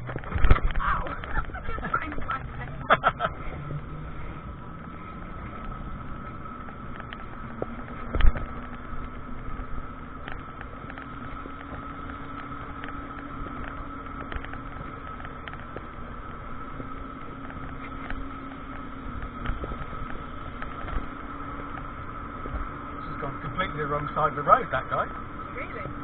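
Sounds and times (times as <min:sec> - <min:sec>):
road and wind noise: 0:00.0 - 0:26.0
steady electric whine: 0:00.0 - 0:26.0.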